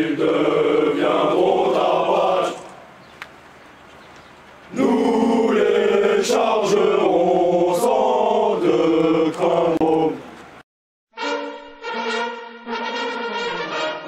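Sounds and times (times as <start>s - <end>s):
soldiers singing marching song: 0.0s - 2.9s, 4.7s - 10.4s.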